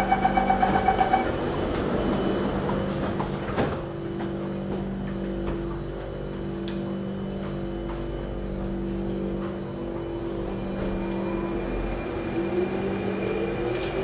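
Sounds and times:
rapid door warning beeps: 0.0s - 1.3s
steady motor tone: 0.0s - 1.6s
train carriage running hum: 0.0s - 14.0s.

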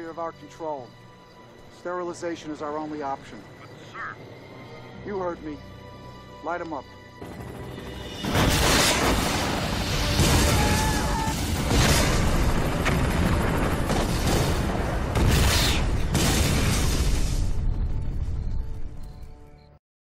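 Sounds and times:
deep rumbling explosion: 8.2s - 18.6s.

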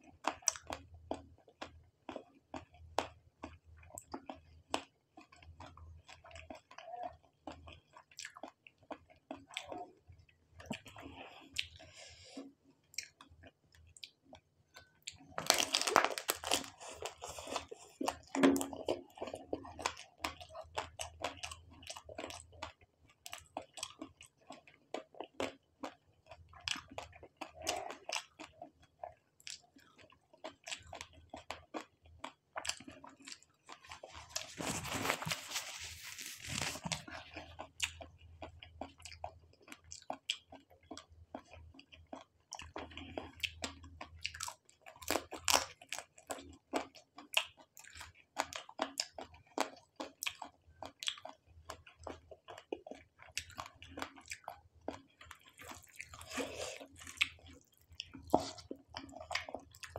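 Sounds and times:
close chewing mouth clicks: 36.9s - 59.9s.

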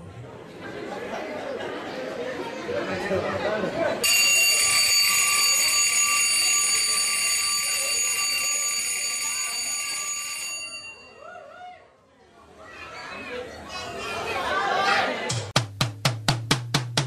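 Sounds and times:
electric bell ringing: 4.0s - 11.2s.

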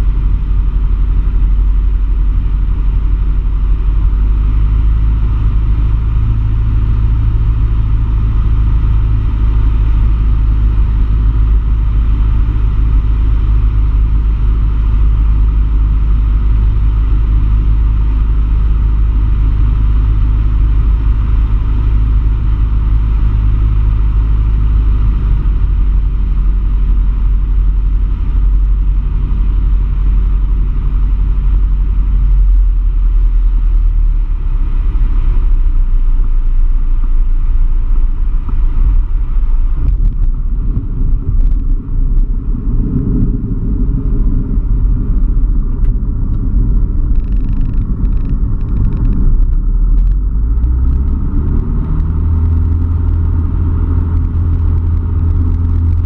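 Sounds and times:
light aircraft engine drone: 0.0s - 56.0s
runway rumble: 0.0s - 56.0s.

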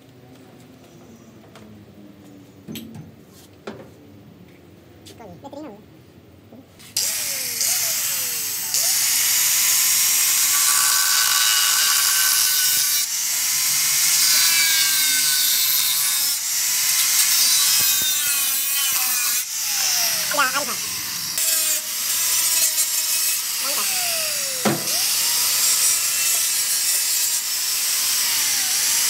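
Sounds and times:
angle grinder cutting steel pipe: 7.0s - 29.0s.

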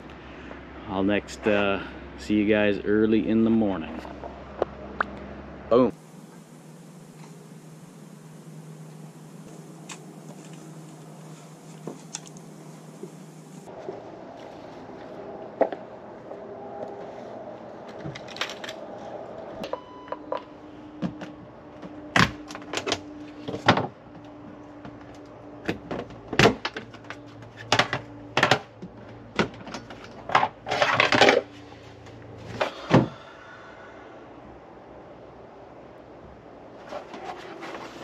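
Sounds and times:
faint steady hum: 0.0s - 38.0s
short electronic beep: 19.7s - 20.2s.

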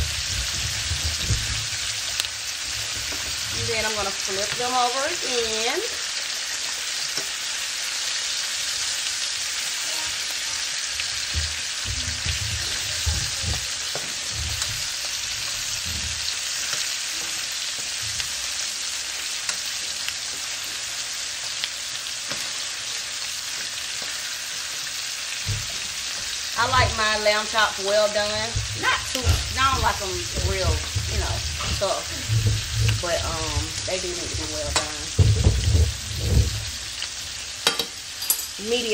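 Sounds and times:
meat sizzling: 0.0s - 38.9s
low bumps: 11.3s - 15.0s, 26.6s - 37.0s.

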